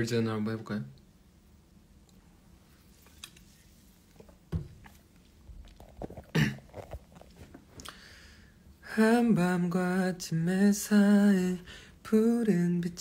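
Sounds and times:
man drinking and swallowing: 4.8 - 8.0
man coughing: 6.2 - 6.8.

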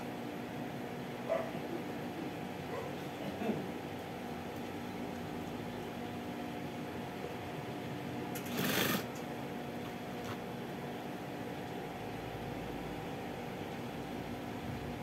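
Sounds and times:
sewing machine motor humming: 8.4 - 9.2
sewing machine stitching: 8.4 - 9.2.

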